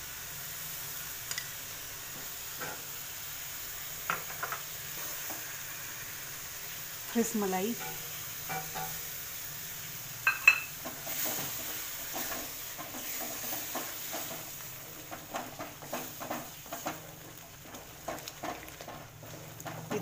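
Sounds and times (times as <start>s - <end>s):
gravy sizzling faintly: 0.0s - 20.0s
spatula scraping in pan: 7.7s - 9.2s, 10.7s - 20.0s.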